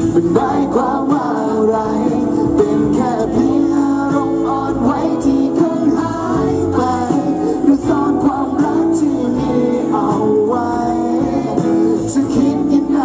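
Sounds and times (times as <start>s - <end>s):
amplified guitar accompaniment: 0.0s - 13.0s
man singing pop song: 0.0s - 13.0s.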